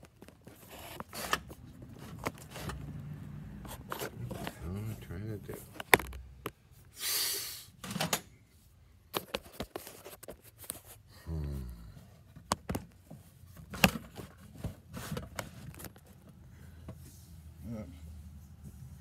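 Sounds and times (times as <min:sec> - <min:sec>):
handling clicks and knocks: 0:05.4 - 0:06.6.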